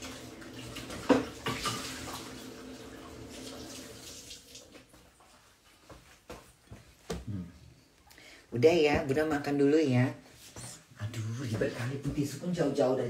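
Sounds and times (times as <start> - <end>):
water running from a tap: 0.0 - 5.0.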